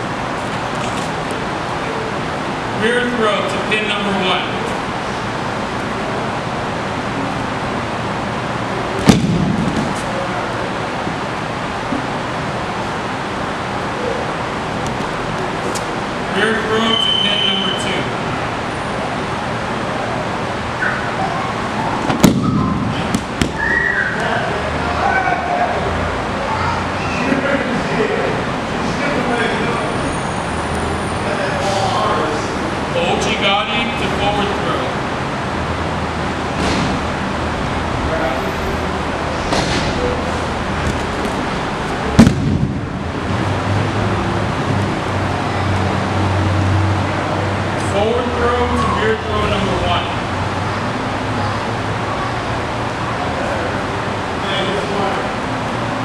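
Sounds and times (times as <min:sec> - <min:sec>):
steady low hum: 0:00.0 - 0:26.8, 0:30.8 - 0:56.0
body thudding on mat: 0:09.0 - 0:10.0
sharp smacks: 0:09.0 - 0:10.0, 0:22.1 - 0:23.7, 0:42.2 - 0:42.7.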